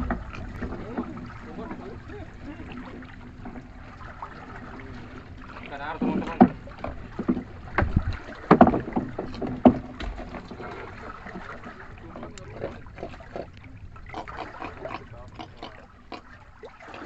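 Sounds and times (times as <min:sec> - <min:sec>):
knocks against a boat: 0:00.0 - 0:02.0, 0:05.6 - 0:13.5
water washing: 0:00.0 - 0:17.0
wind: 0:00.0 - 0:17.0.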